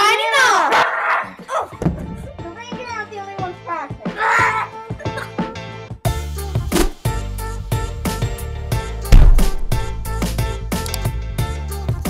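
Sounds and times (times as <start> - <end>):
music with steady beat: 6.4 - 8.4, 9.0 - 11.0
loud low hit: 9.2 - 10.5.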